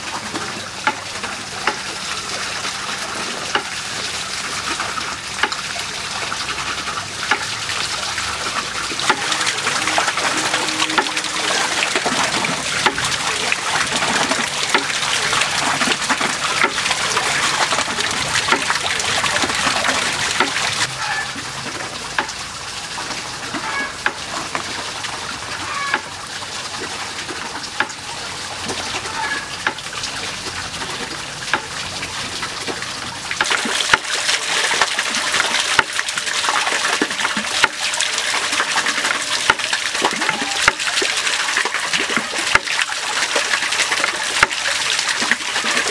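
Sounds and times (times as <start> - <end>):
simmering water hiss: 0.0 - 23.6.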